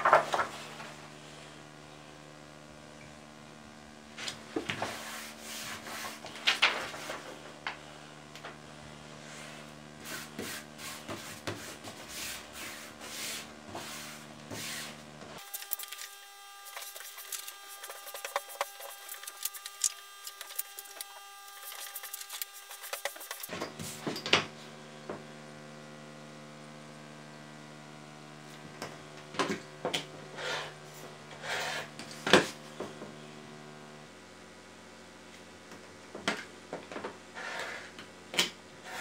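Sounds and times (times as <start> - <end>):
paper rustling and scraping: 0.0 - 0.9, 4.7 - 7.4, 11.2 - 23.5.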